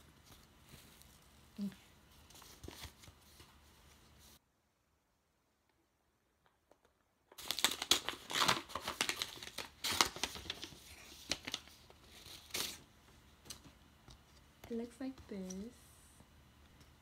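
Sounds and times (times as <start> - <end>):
paper envelope tearing and crinkling: 7.4 - 12.9.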